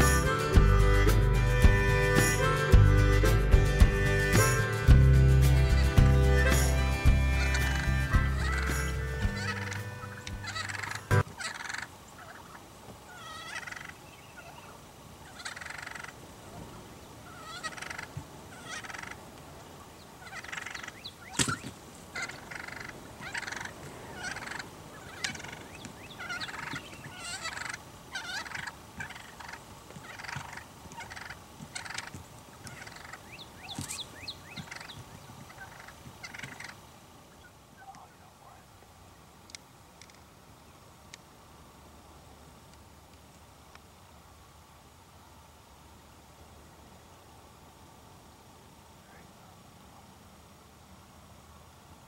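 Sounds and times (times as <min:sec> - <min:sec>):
wild turkeys calling: 0:05.6 - 0:38.8.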